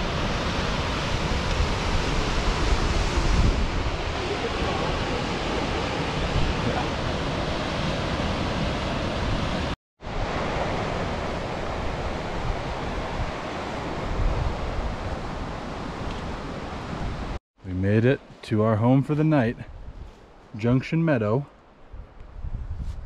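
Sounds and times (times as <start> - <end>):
steady rushing noise: 0.0 - 15.9.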